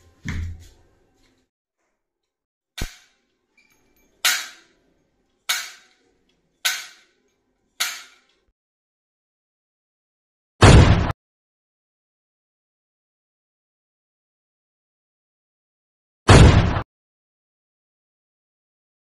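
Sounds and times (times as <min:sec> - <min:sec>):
gunshots: 0:10.6 - 0:11.2, 0:16.3 - 0:16.8.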